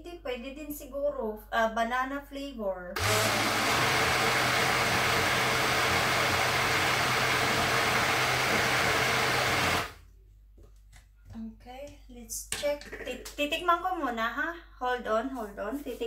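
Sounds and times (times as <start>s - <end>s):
blender running: 3.0s - 10.0s.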